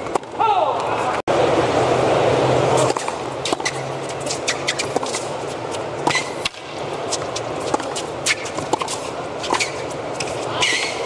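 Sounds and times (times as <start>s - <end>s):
rackets striking tennis ball: 2.7s - 11.0s
shoe squeaks on court: 3.5s - 5.3s, 6.1s - 6.4s, 8.3s - 9.9s, 10.6s - 11.0s.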